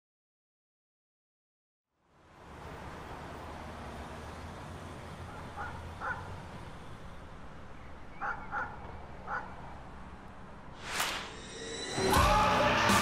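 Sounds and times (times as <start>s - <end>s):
bird calling: 7.7s - 9.8s.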